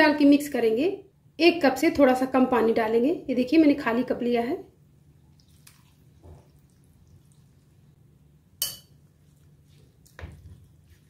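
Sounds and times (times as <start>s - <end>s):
clink on glass bowl: 8.6s - 9.0s.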